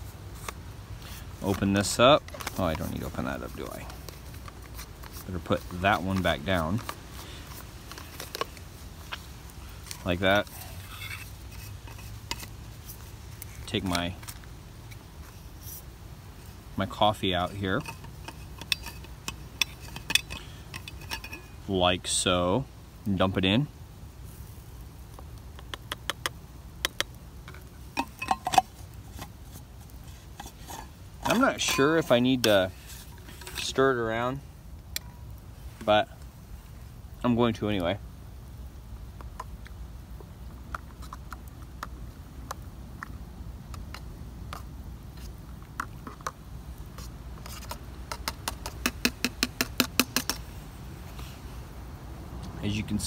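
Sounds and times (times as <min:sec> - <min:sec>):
plastic canister tapped on metal pot: 0:48.1 - 0:50.4.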